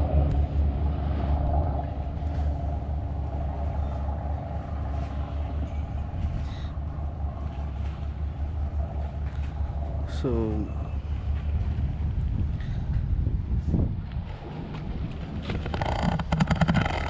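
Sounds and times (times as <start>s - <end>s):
low rumble of open-air ambience: 0.0s - 17.0s.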